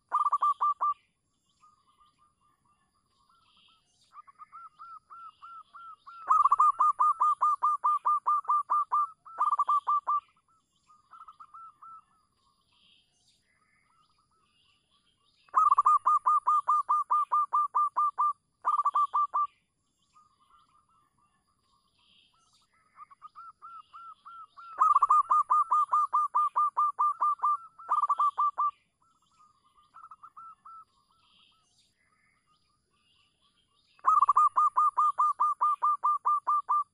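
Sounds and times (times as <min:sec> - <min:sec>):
dove rapid cooing: 0:00.1 - 0:00.9, 0:06.2 - 0:10.2, 0:15.6 - 0:19.5, 0:24.7 - 0:28.7, 0:34.0 - 0:36.8.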